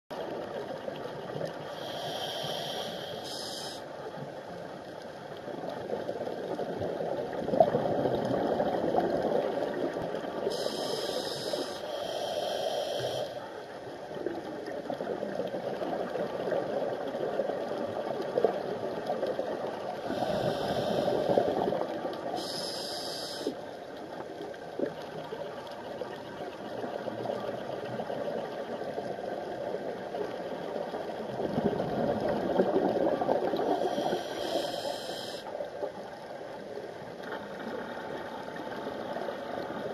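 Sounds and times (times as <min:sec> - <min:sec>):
regulator inhalation hiss: 0:01.7 - 0:03.9, 0:10.4 - 0:13.4, 0:20.0 - 0:21.6, 0:22.4 - 0:23.6, 0:33.7 - 0:35.5
exhaled air bubbling: 0:05.8 - 0:13.4, 0:14.3 - 0:23.7, 0:26.0 - 0:36.4.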